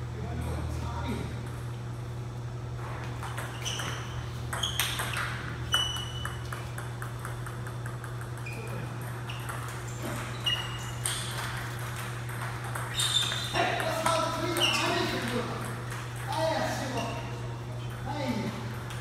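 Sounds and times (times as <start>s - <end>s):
steady low hum: 0.0s - 19.0s
ball bouncing to rest: 3.0s - 10.2s
table tennis ball hits: 3.1s - 16.7s.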